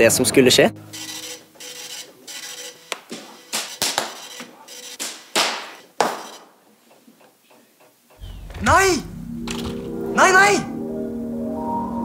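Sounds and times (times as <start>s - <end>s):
sharp pops and spark bursts: 2.9s - 6.6s
sharp crack: 5.0s - 6.5s.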